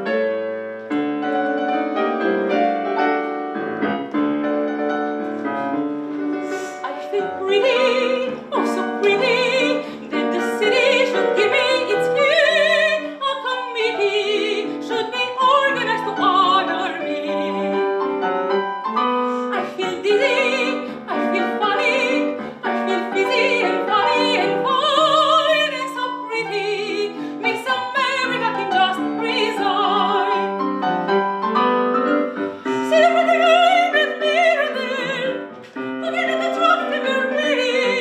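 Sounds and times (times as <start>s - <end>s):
piano accompaniment: 0.0s - 38.0s
operatic singing: 6.4s - 18.0s, 19.3s - 30.4s.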